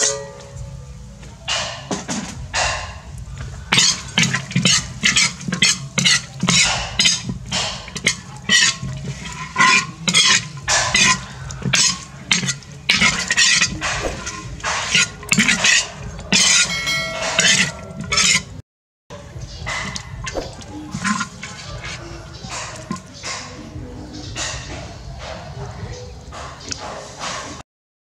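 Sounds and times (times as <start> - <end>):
metal spatula scraping wok: 3.6 - 18.5.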